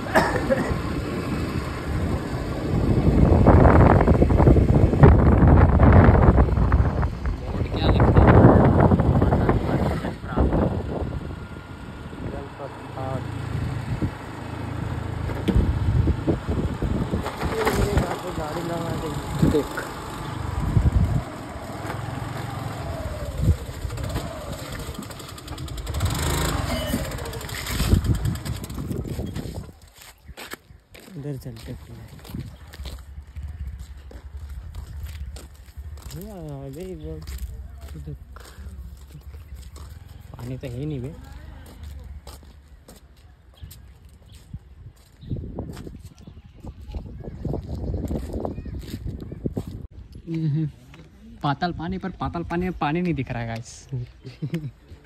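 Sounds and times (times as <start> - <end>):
wind buffeting microphone: 0.0 - 50.2
engine and road noise: 0.0 - 55.0.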